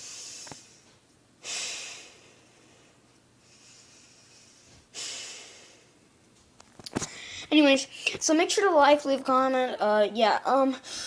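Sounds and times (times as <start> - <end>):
person breathing through nose: 0.0 - 5.9.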